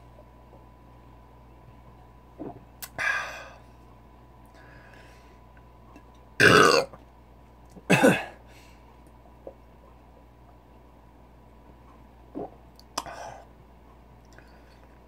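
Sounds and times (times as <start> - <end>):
man belching: 6.4 - 7.0.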